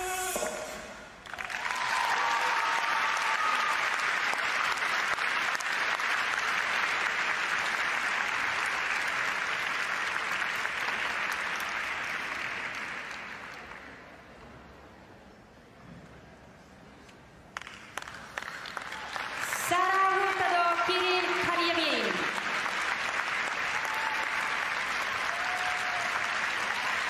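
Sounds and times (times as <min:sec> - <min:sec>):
audience applauding: 0:01.2 - 0:14.0, 0:17.6 - 0:21.0, 0:21.9 - 0:27.0.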